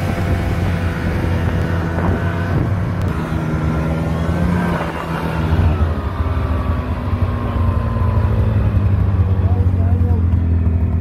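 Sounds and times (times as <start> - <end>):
vehicle engine driving slowly: 0.0 - 11.0.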